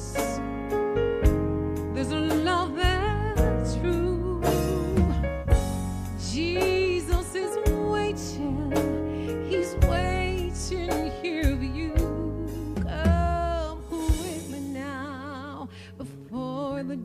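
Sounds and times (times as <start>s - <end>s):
low backing music: 0.0s - 17.0s
woman singing into microphone: 2.0s - 5.3s, 6.2s - 17.0s
drum hits: 4.5s - 7.9s.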